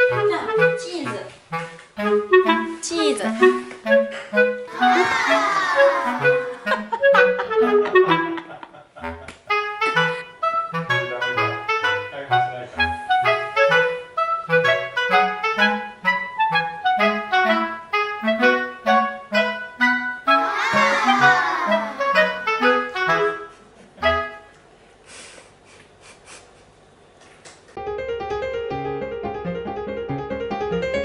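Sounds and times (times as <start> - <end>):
bouncy woodwind tune with bass: 0.0 - 24.6.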